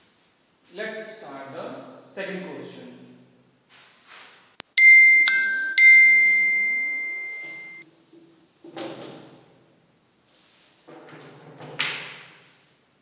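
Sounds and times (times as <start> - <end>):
three-note electronic chime: 4.6 - 7.8.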